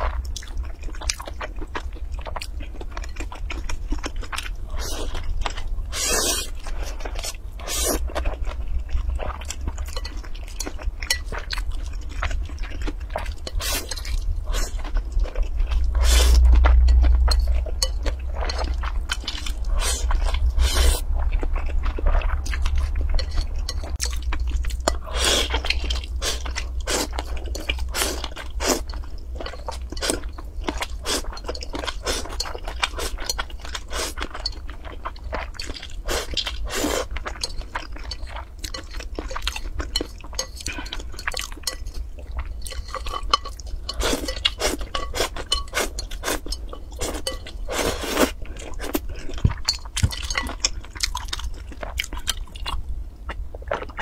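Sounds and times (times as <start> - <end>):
chewing and biting: 0.0 - 54.0.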